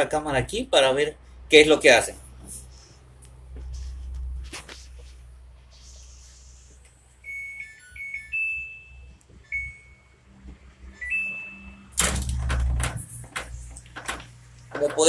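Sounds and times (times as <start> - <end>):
washing machine beeping tune: 7.2 - 12.8.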